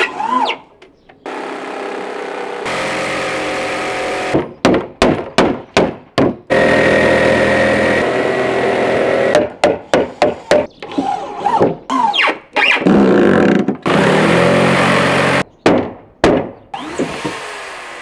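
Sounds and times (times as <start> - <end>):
jigsaw cutting wood: 1.3 - 4.4, 6.5 - 9.4, 12.9 - 15.4, 16.8 - 18.0.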